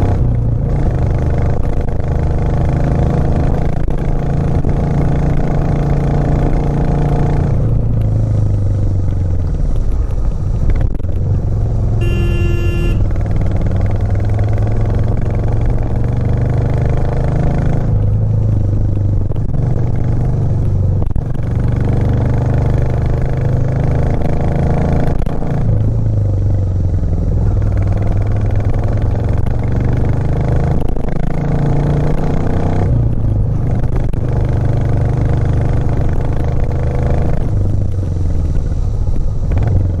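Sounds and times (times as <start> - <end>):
motorcycle engine running: 0.0 - 40.0
motorcycle horn: 12.0 - 13.2.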